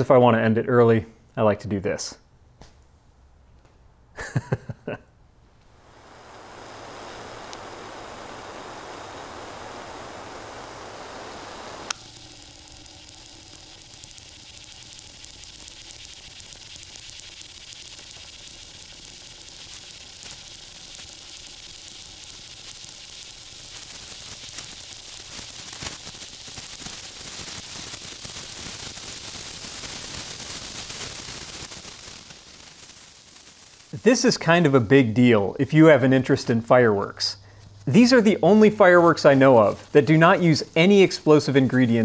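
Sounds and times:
sparkler sizzling and crackling: 4.2 - 4.8, 5.6 - 42.0
torch flame hissing: 5.6 - 42.0
torch switch click: 7.1 - 12.2.

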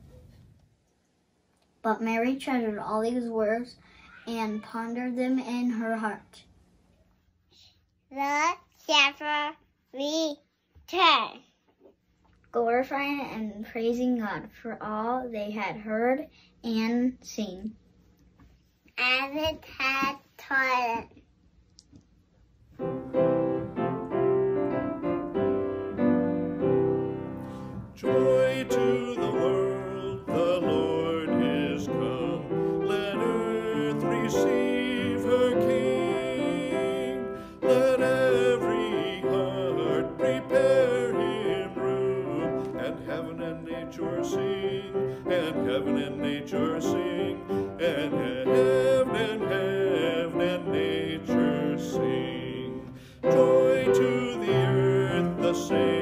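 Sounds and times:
piano accompaniment: 22.8 - 56.0
man singing: 28.0 - 56.0.

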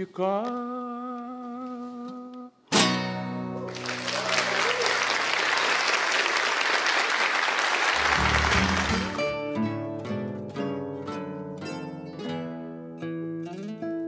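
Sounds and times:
audience applause: 3.7 - 9.3
low closing music: 8.0 - 9.4
classical guitar chord strummed: 8.0 - 14.0.

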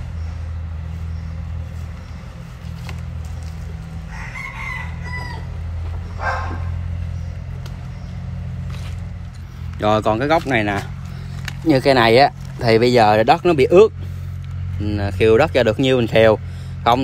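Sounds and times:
soil rustling: 0.0 - 6.2, 6.8 - 17.0
low engine drone: 0.0 - 17.0
rooster crowing: 3.8 - 6.8.

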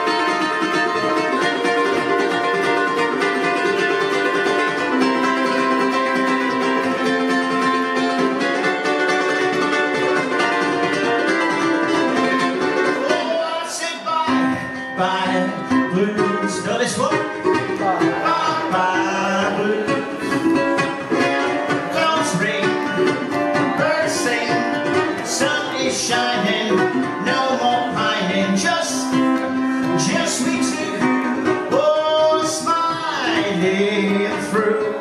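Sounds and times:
ukulele playing: 0.0 - 35.0
man singing: 12.8 - 35.0.

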